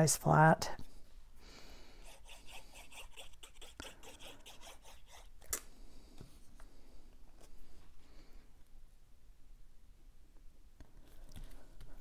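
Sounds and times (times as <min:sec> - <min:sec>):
glue nozzle rubbing on cardstock: 0:02.0 - 0:05.4.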